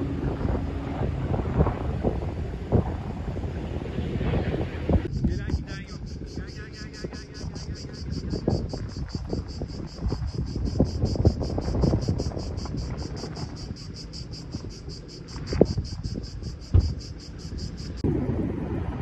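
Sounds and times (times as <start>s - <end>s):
wind rumble on microphone: 0.0s - 19.0s
insects chirping: 5.0s - 18.0s
sharp knocks: 16.7s - 17.0s.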